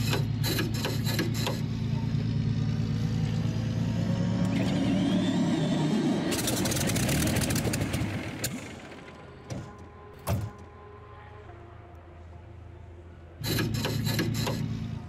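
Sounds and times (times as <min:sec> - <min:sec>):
engine firing crackle: 0:00.0 - 0:09.8
aircraft engine starting: 0:00.0 - 0:10.7, 0:13.4 - 0:15.0.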